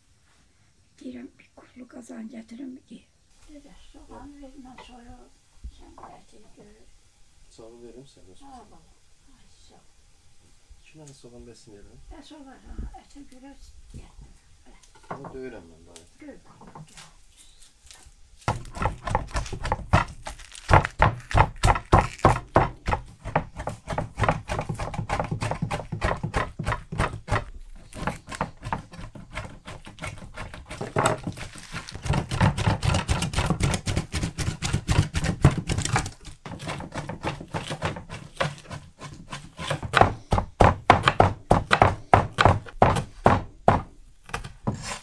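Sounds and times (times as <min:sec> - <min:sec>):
cleaver chopping on wooden board: 0:18.5 - 0:45.0.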